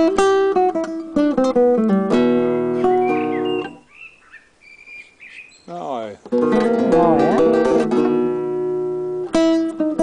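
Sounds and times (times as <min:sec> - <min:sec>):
classical guitar playing: 0:00.0 - 0:03.9, 0:06.2 - 0:10.0.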